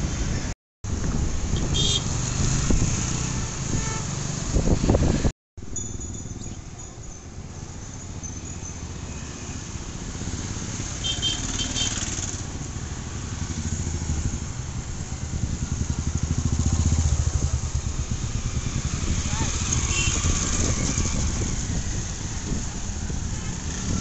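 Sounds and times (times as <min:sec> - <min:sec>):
motorcycle engine running: 0:13.4 - 0:22.6.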